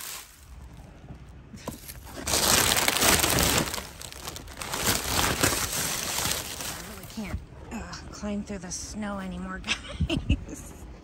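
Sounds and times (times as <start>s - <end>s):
crunching and rustling in dumpster: 0.0s - 7.4s.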